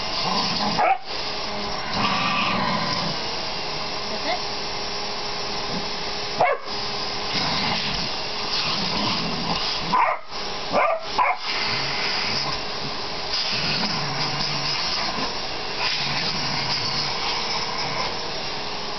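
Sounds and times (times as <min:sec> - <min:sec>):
vacuum cleaner running: 0:00.0 - 0:18.9
dog barking: 0:00.8 - 0:01.1, 0:06.4 - 0:06.7, 0:09.9 - 0:11.4.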